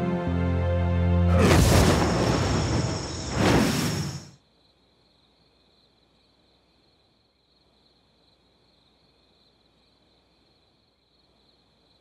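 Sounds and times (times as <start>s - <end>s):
night insects trilling: 1.4s - 12.0s.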